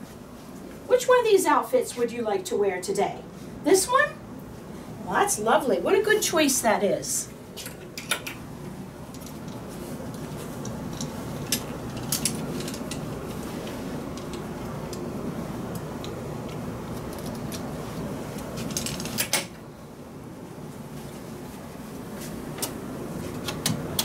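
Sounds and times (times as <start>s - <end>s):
clothes hangers clinking: 10.6s - 13.1s.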